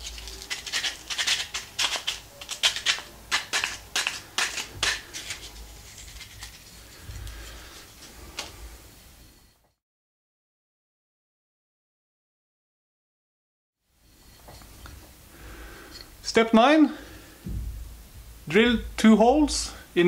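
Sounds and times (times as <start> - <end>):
hands rubbing sanded wood: 0.0 - 8.2.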